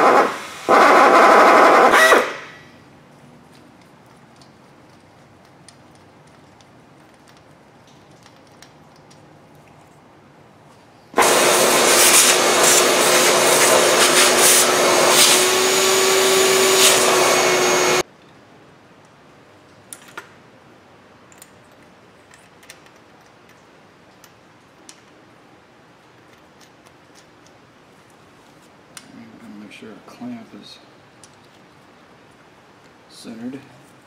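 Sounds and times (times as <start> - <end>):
power drill drilling into metal: 0.0 - 2.5, 11.2 - 18.0.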